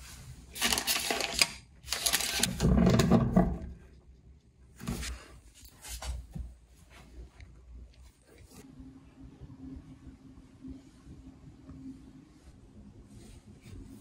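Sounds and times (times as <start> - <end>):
wrapped packets rustling: 0.5 - 2.5.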